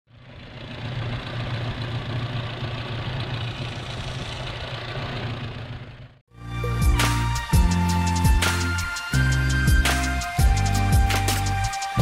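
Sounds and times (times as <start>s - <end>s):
car engine idling: 0.1s - 6.2s.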